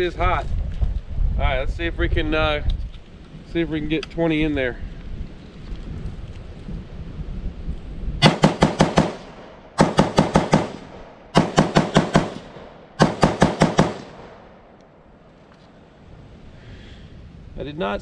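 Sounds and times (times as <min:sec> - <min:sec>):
wind rumbling on microphone: 0:00.0 - 0:18.0
rifle fired rapidly: 0:08.2 - 0:14.5.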